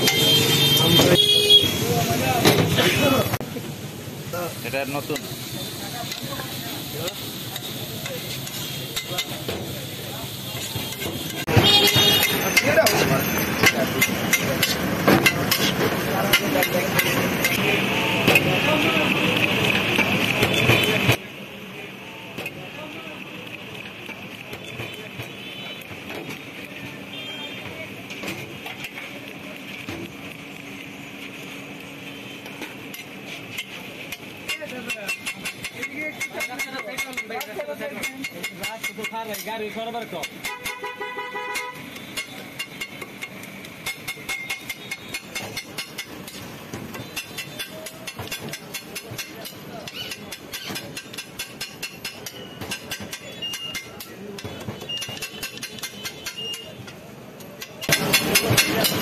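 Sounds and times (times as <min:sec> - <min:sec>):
food sizzling on griddle: 0:00.0 - 0:40.7, 0:41.8 - 0:59.0
metal spatula scraping griddle: 0:07.0 - 0:17.6, 0:41.5 - 0:57.0.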